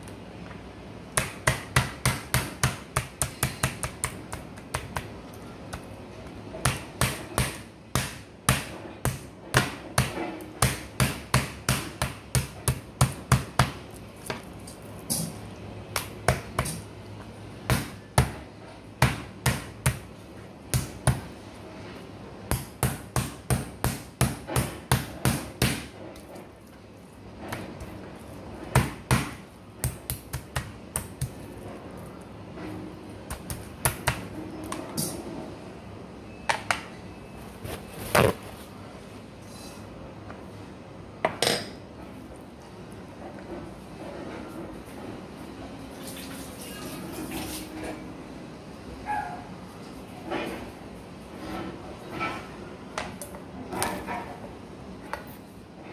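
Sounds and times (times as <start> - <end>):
mallet pounding meat on a board: 1.2 - 5.1, 6.6 - 13.8, 17.7 - 18.4, 19.0 - 20.1, 20.7 - 21.3, 22.5 - 25.9, 28.7 - 31.4.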